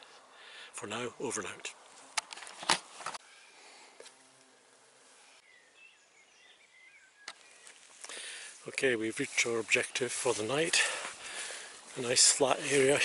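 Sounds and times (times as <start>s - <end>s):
camera handling rustling: 1.9s - 3.2s
faint bird chirps: 3.2s - 3.8s, 5.2s - 7.9s.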